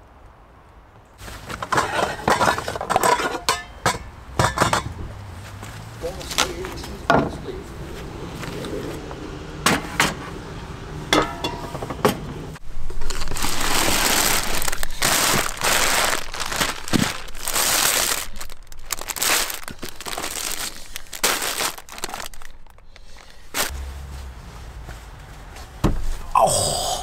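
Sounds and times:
plastic bags crinkling: 12.8s - 23.8s.

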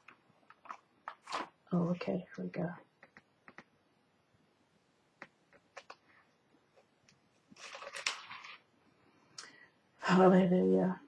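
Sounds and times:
paper pages rustling: 0.0s - 1.6s, 7.5s - 8.7s.

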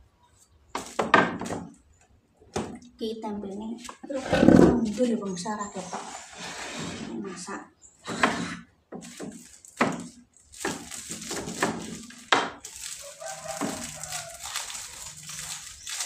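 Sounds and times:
packages knocking on wooden bench: 0.8s - 1.8s, 8.1s - 16.0s
plastic and leaf wrapping crinkling: 3.4s - 6.2s, 9.0s - 16.0s.

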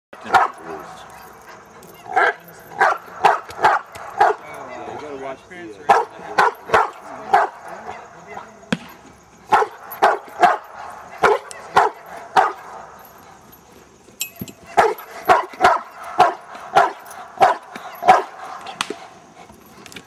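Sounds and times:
dog barking: 0.2s - 4.9s, 5.9s - 8.5s, 9.5s - 13.1s, 14.6s - 18.8s.

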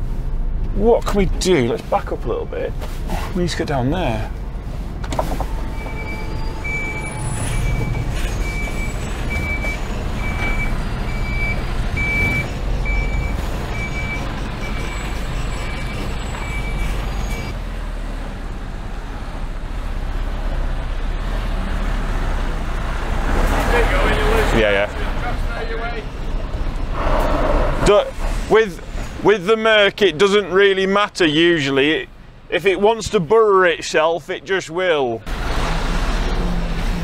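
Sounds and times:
diesel engine running: 3.2s - 29.3s
reverse alarm beeping: 5.7s - 17.6s.

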